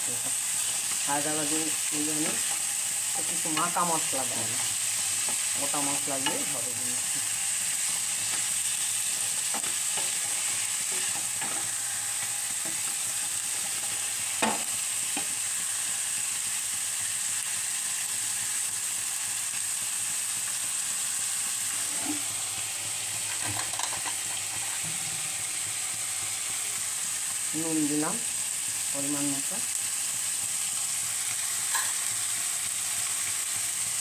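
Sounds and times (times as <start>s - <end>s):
food sizzling in a pan: 0.0s - 34.0s.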